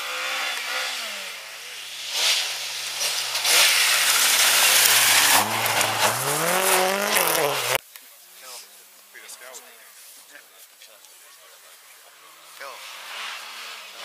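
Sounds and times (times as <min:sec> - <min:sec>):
rally car engine revving: 0:00.0 - 0:07.8, 0:12.8 - 0:14.0
tyres sliding on snow: 0:00.0 - 0:07.8, 0:11.2 - 0:14.0.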